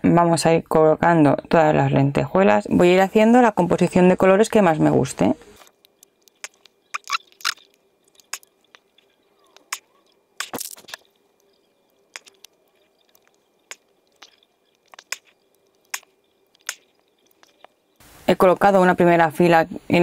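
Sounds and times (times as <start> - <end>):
sequins clicking: 5.7 - 18.0.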